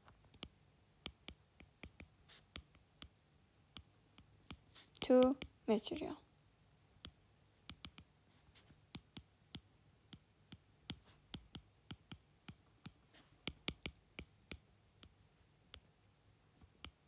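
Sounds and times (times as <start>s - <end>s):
stylus tapping on glass screen: 0.3s - 5.6s, 7.0s - 8.1s, 9.0s - 15.9s.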